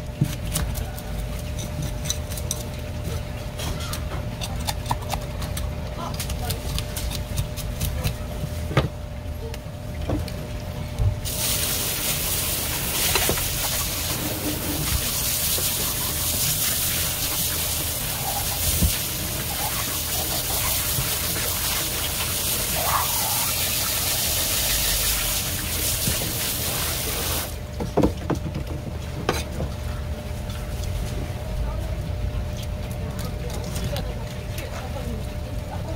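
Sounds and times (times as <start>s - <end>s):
tap water spraying onto plastic: 11.2s - 27.5s.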